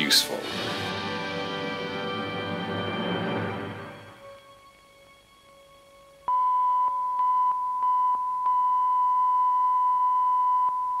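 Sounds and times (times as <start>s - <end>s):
music: 0.0s - 8.5s
steady electronic beep tone: 6.3s - 11.0s.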